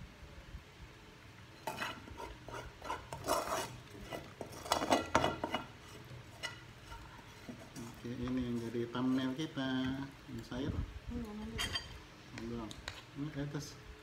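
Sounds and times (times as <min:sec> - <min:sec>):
cutlery scraping ceramic plates: 0:01.6 - 0:09.4, 0:11.6 - 0:12.0.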